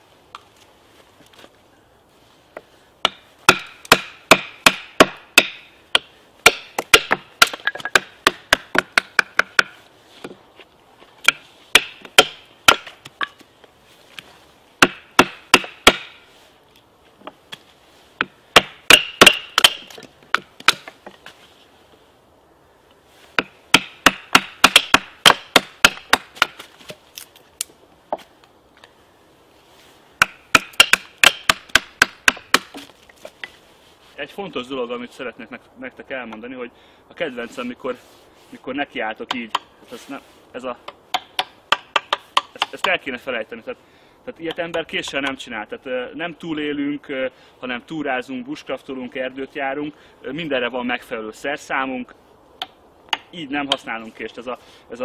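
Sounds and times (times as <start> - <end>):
wood splitting: 3.0 - 10.4, 11.2 - 13.5, 14.8 - 16.3, 18.2 - 21.3, 23.3 - 28.3, 30.2 - 33.6, 40.8 - 43.0.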